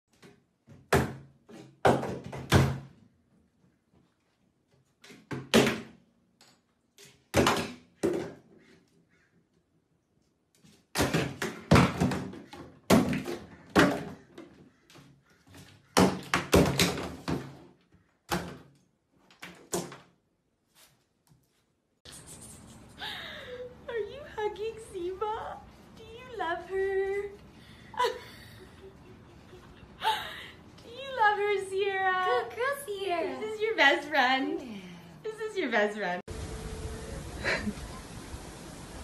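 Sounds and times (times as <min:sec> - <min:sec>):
plastic bottles clattering into tub: 0:11.0 - 0:14.5.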